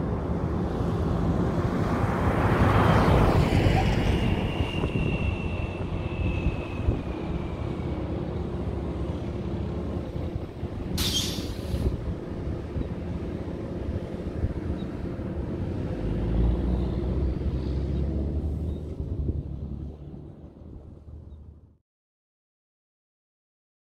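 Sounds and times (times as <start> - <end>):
air hiss: 11.0 - 11.9.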